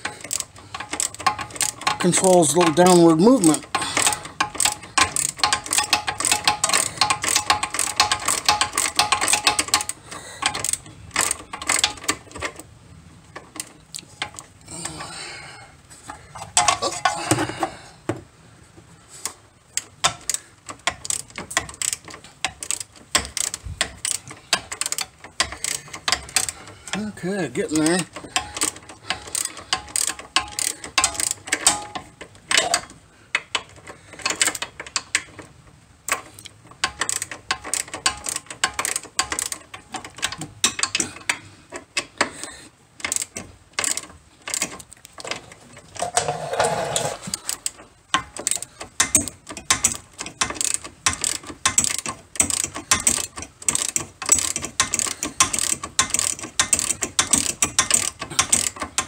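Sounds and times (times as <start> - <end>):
socket ratchet clicking: 0.0 - 2.8, 3.4 - 12.6, 19.8 - 26.9, 28.1 - 35.4, 36.1 - 42.3, 43.0 - 45.0, 47.3 - 59.0.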